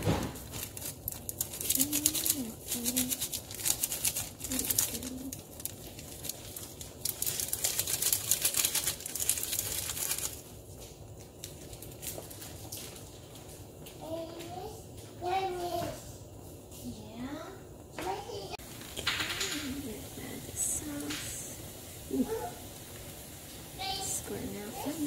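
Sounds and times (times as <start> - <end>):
foil packet crinkling: 0.0 - 13.5
dried flakes crackling on hot pan: 0.0 - 15.6, 18.6 - 25.0.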